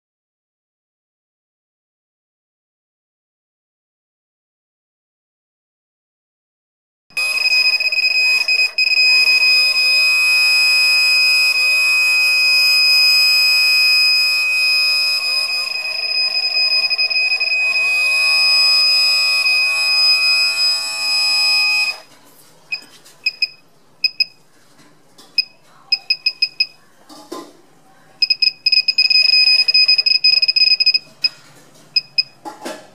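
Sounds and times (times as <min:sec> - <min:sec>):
high electronic buzzer tone: 0:07.2 - 0:22.1, 0:28.2 - 0:31.1
short irregular beeps: 0:07.2 - 0:22.1, 0:22.7 - 0:24.4, 0:25.4 - 0:26.8, 0:28.2 - 0:31.4, 0:32.0 - 0:32.4.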